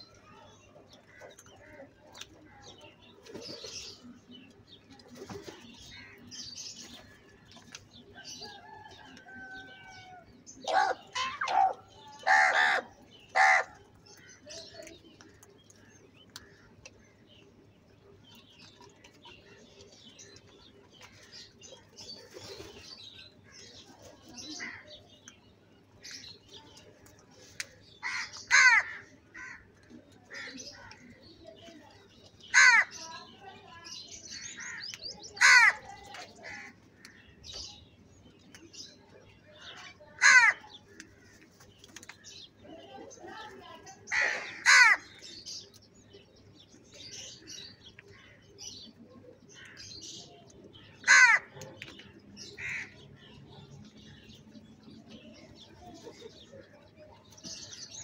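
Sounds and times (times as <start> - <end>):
crows cawing: 12.2 - 13.8, 28.0 - 29.7, 32.5 - 33.0, 34.4 - 36.8, 40.2 - 40.6, 44.1 - 45.2, 51.0 - 51.5, 52.6 - 53.0.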